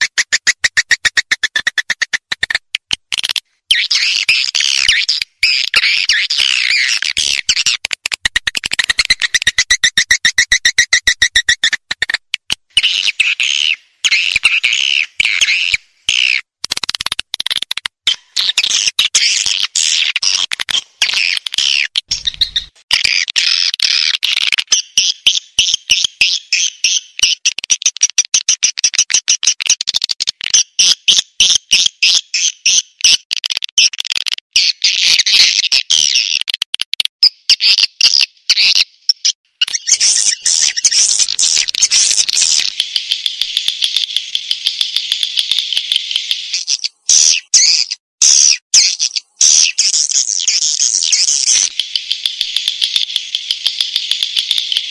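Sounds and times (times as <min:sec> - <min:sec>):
high twittering bird chirps: 0:03.2 - 0:07.8, 0:12.8 - 0:16.4, 0:21.0 - 0:24.2, 0:37.3 - 0:54.9.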